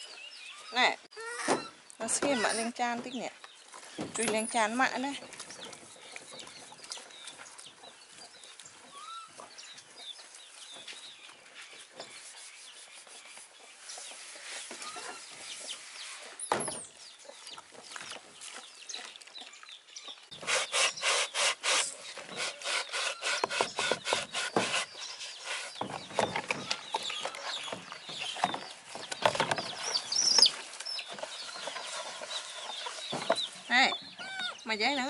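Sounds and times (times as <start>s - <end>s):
chickens clucking: 22.4s - 34.6s.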